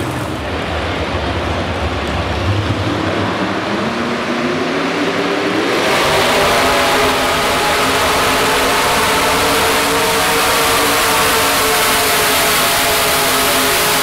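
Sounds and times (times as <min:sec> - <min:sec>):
truck engine revving at full throttle: 0:00.0 - 0:14.0.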